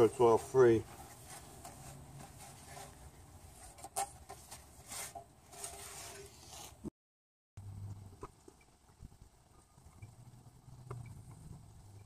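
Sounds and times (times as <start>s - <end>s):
rag rubbing metal pan: 0.8s - 6.9s.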